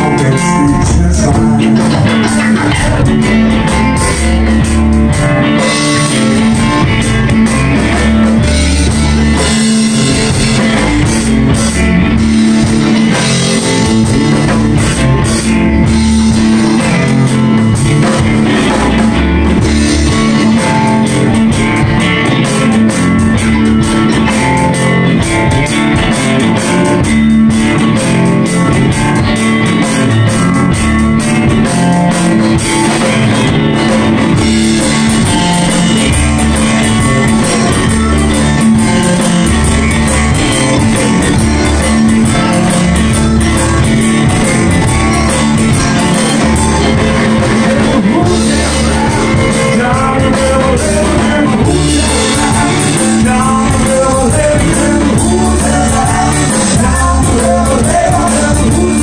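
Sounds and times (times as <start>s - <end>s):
drum kit with crashing cymbals: 0.0s - 59.0s
electric guitars: 0.0s - 59.0s.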